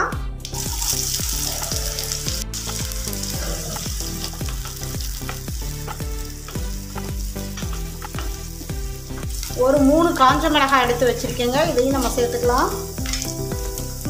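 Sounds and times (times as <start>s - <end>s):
onion sizzling in oil: 0.4s - 14.0s
wooden spatula stirring: 1.5s - 10.4s.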